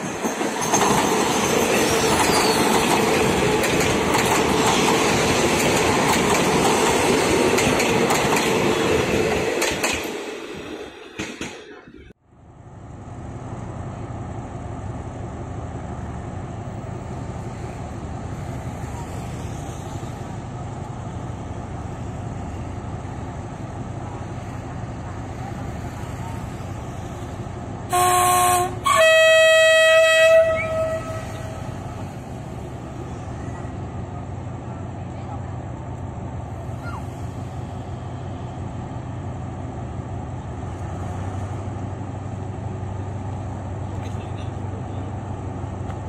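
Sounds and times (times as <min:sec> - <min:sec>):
locomotive horn blasts: 0:27.9 - 0:32.0.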